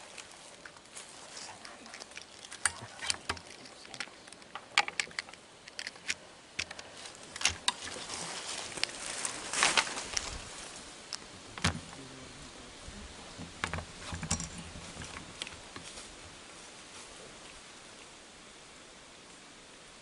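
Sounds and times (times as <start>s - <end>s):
faint background hiss: 0.0s - 20.0s
sharp clicks and crackles: 1.5s - 8.1s.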